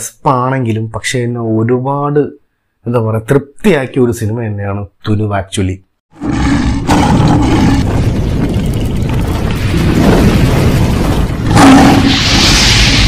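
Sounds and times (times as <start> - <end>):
fire and explosion rumble: 6.4 - 13.0
heavy boom: 6.9 - 13.0.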